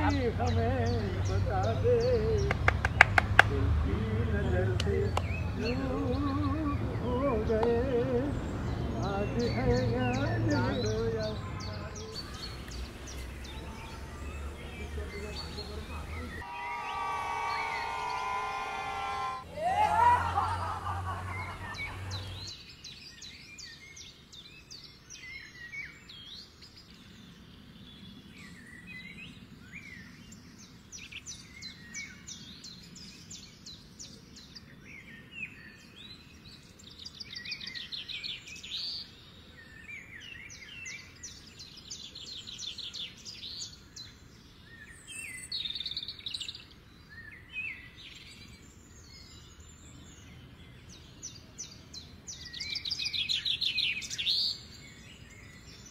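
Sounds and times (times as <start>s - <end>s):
birds chirping: 0.0s - 55.9s.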